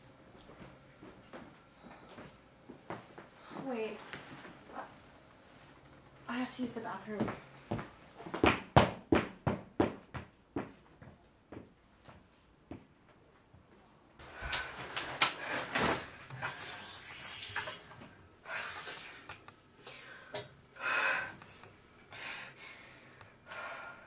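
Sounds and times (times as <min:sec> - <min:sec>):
tap running: 0:17.2 - 0:22.2.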